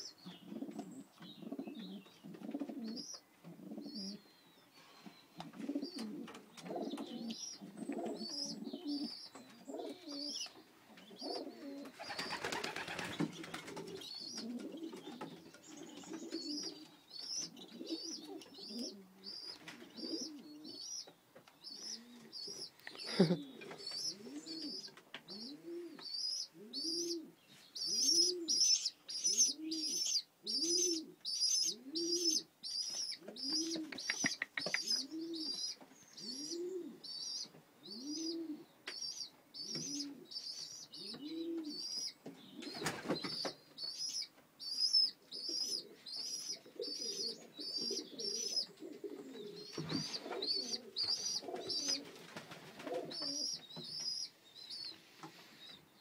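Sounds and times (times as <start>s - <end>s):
young pigeons squeaking: 0.0s - 56.0s
pigeon rising and falling call: 23.2s - 48.7s, 49.3s - 52.2s.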